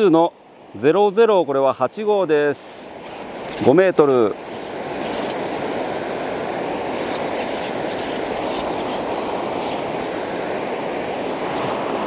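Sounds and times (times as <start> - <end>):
river rushing: 0.0 - 12.0
short dry rubbing sounds: 2.9 - 5.7, 6.9 - 9.8.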